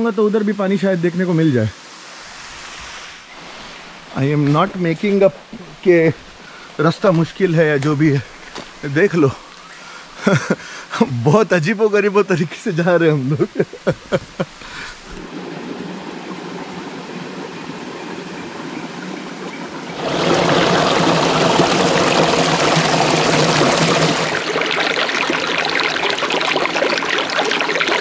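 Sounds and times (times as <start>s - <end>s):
stream splashing over rocks: 3.9s - 10.3s, 12.2s - 28.0s.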